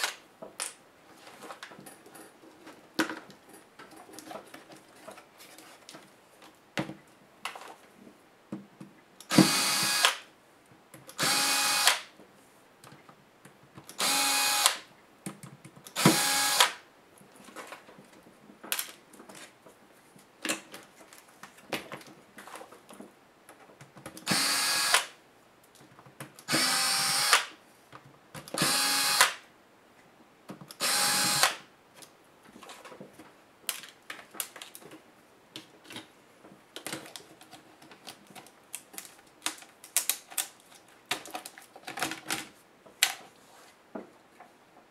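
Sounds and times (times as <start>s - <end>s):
cordless drill spinning: 9.3s - 10.2s, 11.2s - 12.0s, 14.0s - 14.7s, 16.0s - 16.7s, 24.2s - 25.0s, 26.5s - 27.4s, 28.6s - 29.2s, 30.8s - 31.5s.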